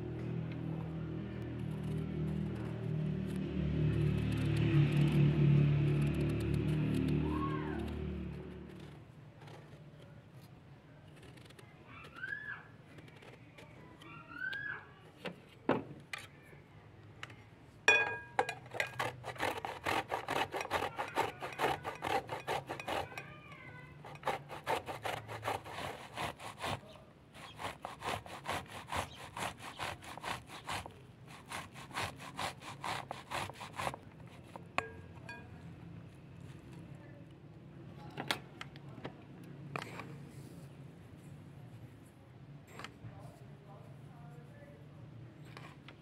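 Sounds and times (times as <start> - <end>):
vegetable rasping on box grater: 18.7 - 23.2, 24.0 - 34.7.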